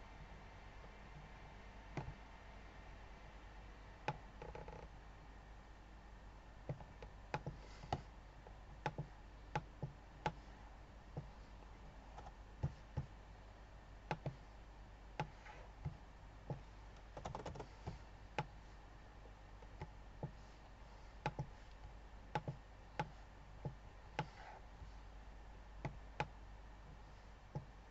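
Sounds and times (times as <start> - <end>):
faint steady low hum: 0.0 - 27.9
computer mouse and keyboard clicks: 4.1 - 4.9, 6.7 - 8.1, 8.8 - 10.4, 14.1 - 14.4, 15.2 - 18.5, 21.2 - 24.6.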